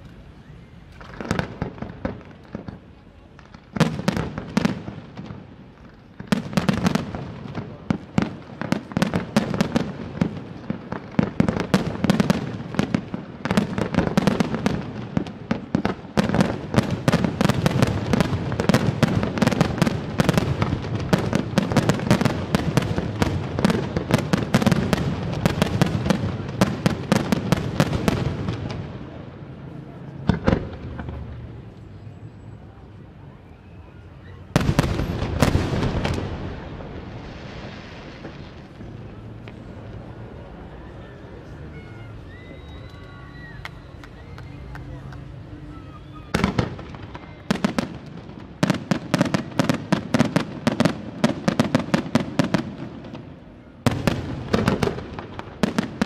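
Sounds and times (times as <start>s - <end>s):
fireworks bangs and crackling: 0.0s - 56.0s.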